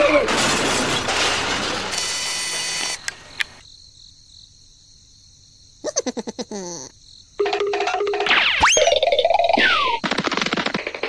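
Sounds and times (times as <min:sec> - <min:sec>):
loud crashing and shattering: 0:00.0 - 0:02.0
sharp clicks: 0:02.8 - 0:03.6
cartoon falling sound effect: 0:08.2 - 0:10.0.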